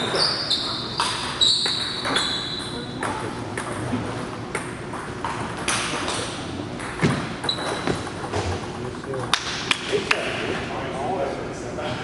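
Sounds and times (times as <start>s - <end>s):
brief high squeak: 0.0s - 2.8s
table tennis ball clicking: 6.8s - 9.9s.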